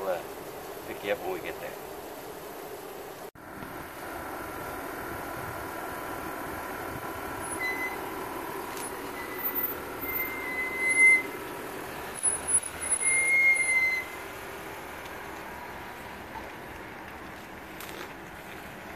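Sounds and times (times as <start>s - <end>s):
car engine running: 0.0s - 18.9s
high-pitched squeals: 7.4s - 14.3s.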